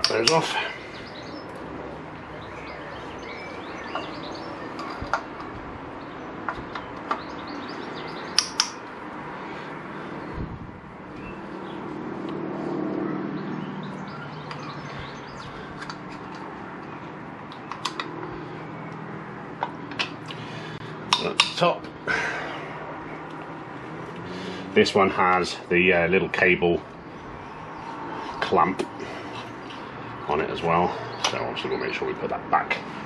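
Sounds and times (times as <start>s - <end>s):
birds chirping: 0.0s - 33.0s
socket wrench clicking: 8.4s - 8.8s.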